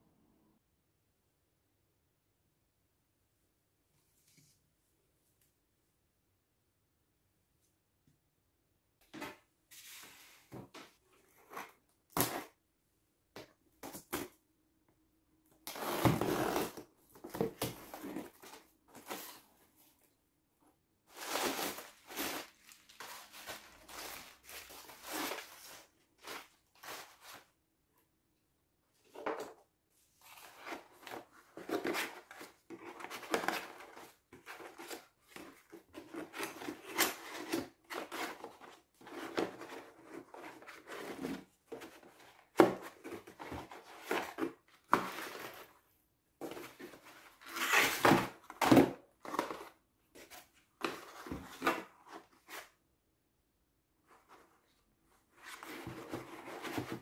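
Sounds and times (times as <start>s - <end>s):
packing paper rustling: 21.1s - 27.5s.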